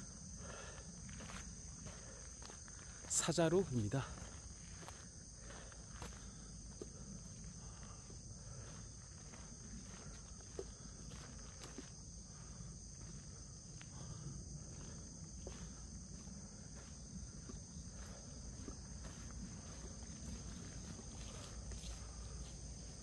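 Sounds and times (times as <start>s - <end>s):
high-pitched insect chorus: 0.0s - 23.0s
footsteps on stone paving: 14.8s - 23.0s.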